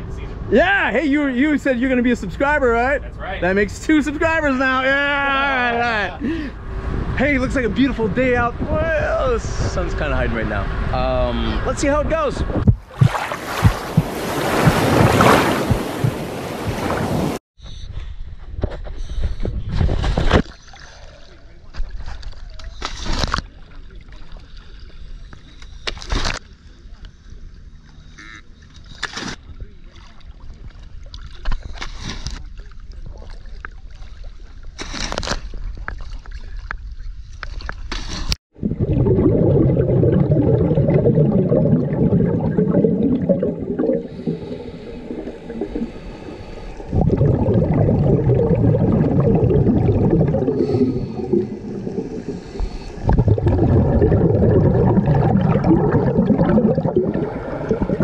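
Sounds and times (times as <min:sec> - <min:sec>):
underwater rush of water: 0:12.6 - 0:17.4, 0:38.5 - 0:58.0
divers splashing into water: 0:12.7 - 0:17.4, 0:38.6 - 0:58.0
regulator bubbles: 0:38.5 - 0:58.0.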